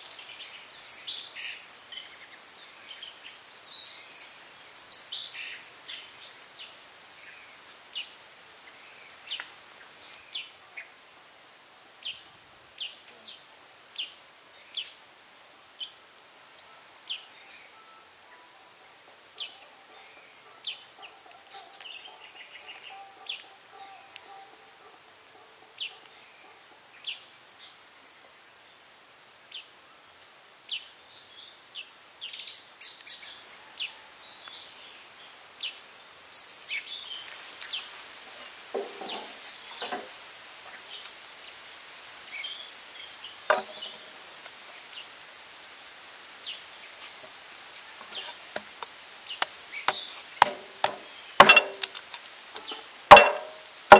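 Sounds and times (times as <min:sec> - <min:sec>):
steady hiss: 0:00.0 - 0:53.9
birds chirping: 0:17.2 - 0:27.2, 0:38.8 - 0:45.0, 0:49.3 - 0:53.9
short knocks: 0:43.5 - 0:43.9, 0:52.6 - 0:53.6.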